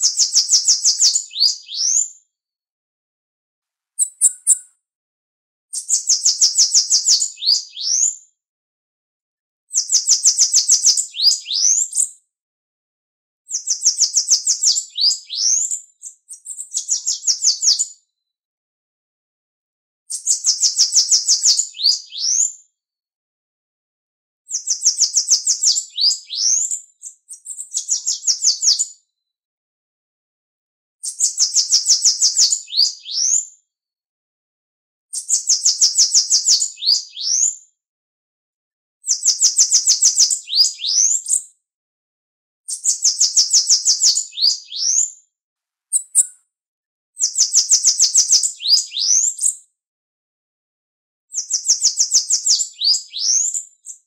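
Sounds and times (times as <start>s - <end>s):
bird singing rapid notes: 4.0s - 4.7s, 45.9s - 46.3s.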